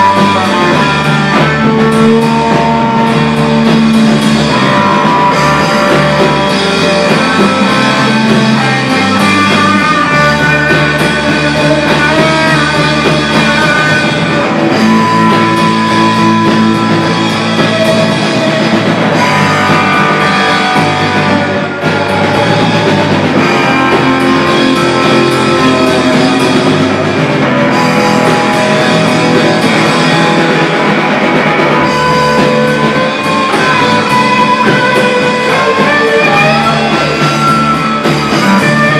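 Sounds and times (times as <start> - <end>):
distorted electric guitars: 0.0 - 38.9
drum kit: 0.0 - 38.9.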